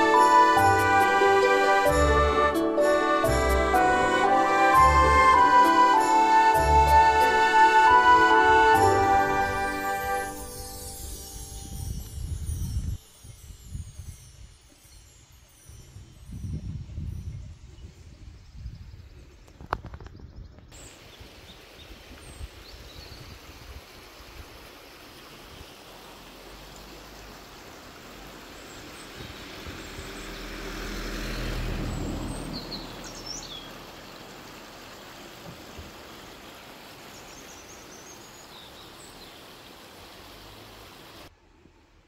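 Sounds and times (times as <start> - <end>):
outdoor hiss: 0.0 - 15.8, 20.7 - 42.0
car passing: 28.3 - 34.2
small birds chirping: 28.4 - 34.9, 36.2 - 39.8.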